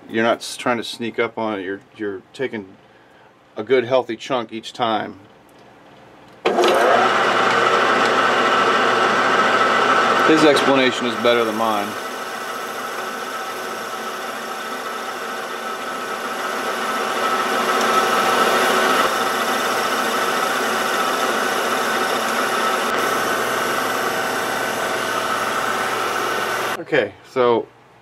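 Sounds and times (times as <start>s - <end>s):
lathe tool cutting metal: 6.5s - 26.8s
metal lathe motor whining: 6.5s - 26.8s.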